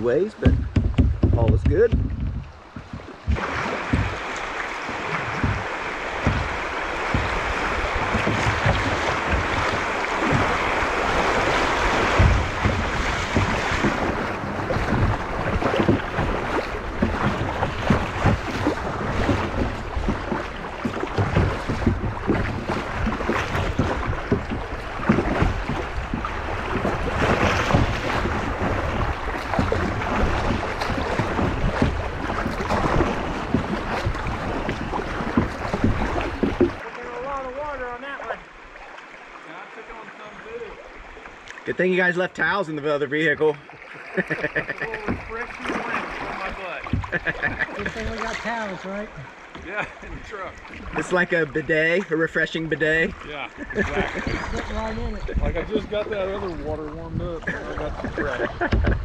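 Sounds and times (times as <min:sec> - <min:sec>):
wind buffeting microphone: 0:00.0 - 0:36.8, 0:53.6 - 0:59.0
creek water rushing and splashing: 0:00.0 - 0:59.0
knocks against kayak hull: 0:00.4 - 0:37.4, 0:44.3 - 0:48.4, 0:49.2 - 0:51.0, 0:58.5 - 0:59.0.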